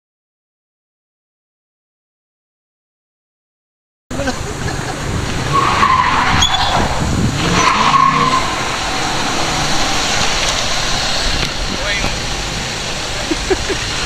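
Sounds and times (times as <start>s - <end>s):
car engine running: 4.1s - 14.0s
tyre squeals: 5.5s - 11.3s.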